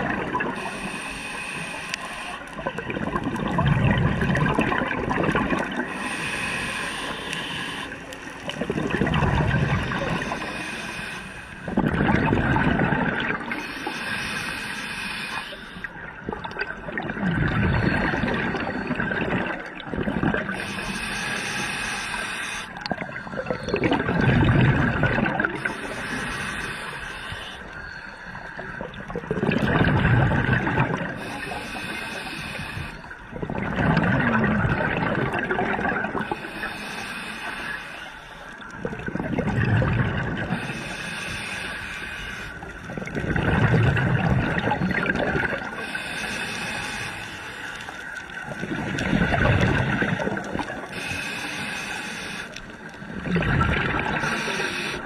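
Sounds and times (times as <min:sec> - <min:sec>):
exhaled air bubbling underwater: 0:00.0 - 0:55.0
regulator inhale hiss: 0:00.5 - 0:02.6, 0:05.8 - 0:08.6, 0:09.8 - 0:11.8, 0:13.5 - 0:16.0, 0:20.5 - 0:23.8, 0:25.5 - 0:28.9, 0:31.2 - 0:33.2, 0:36.2 - 0:38.8, 0:40.5 - 0:43.0, 0:45.6 - 0:53.1, 0:54.0 - 0:55.0.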